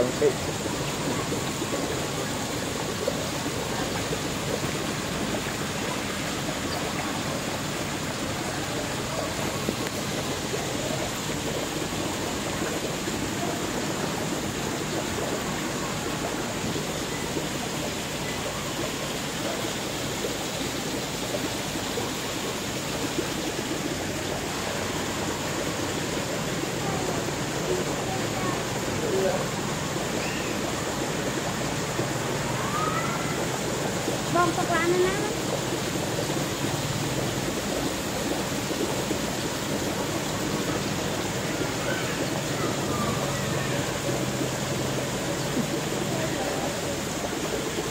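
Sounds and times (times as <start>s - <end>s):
fish churning water surface: 0.0s - 47.9s
water rushing and splashing: 0.0s - 47.9s.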